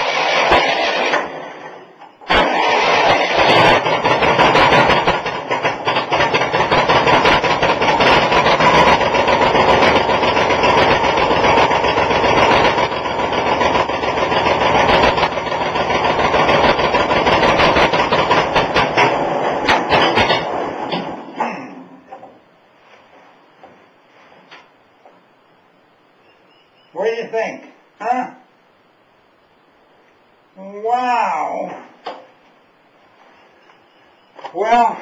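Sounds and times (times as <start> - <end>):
tractor engine running: 0.0 - 21.4.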